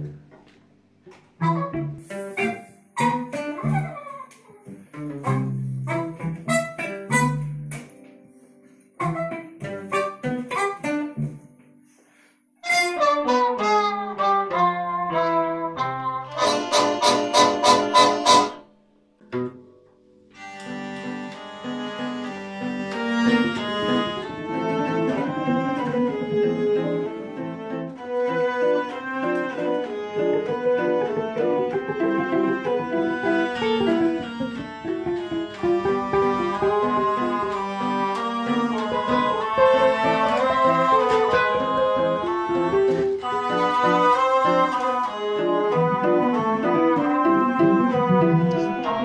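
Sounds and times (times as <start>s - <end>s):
waltz on plucked strings: 1.3s - 11.5s, 12.8s - 18.6s, 19.2s - 49.0s
trumpet sustained notes: 12.6s - 18.6s, 20.4s - 49.0s
hurdy-gurdy melody over drone: 20.4s - 28.0s.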